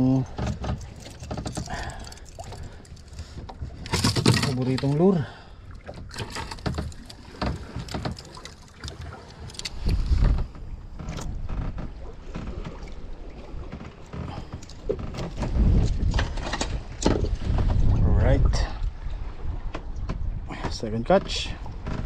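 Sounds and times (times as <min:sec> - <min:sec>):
fishing tackle clicks and knocks: 0:00.2 - 0:05.0, 0:05.8 - 0:11.4
wind gusting on microphone: 0:09.7 - 0:11.5, 0:14.8 - 0:20.6.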